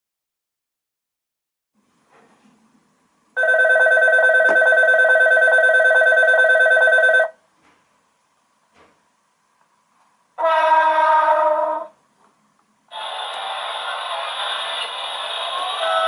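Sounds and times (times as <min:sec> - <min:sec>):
electric bell ringing: 0:03.4 - 0:07.3.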